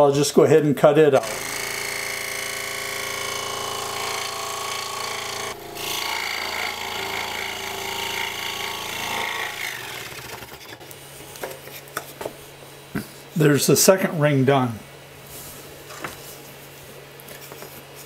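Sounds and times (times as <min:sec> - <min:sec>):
scroll saw blade cutting wood: 0:01.2 - 0:10.9.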